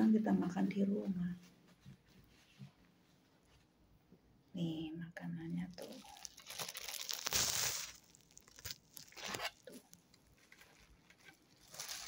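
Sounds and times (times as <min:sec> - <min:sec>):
plastic bag and container crinkling: 0:05.6 - 0:12.0.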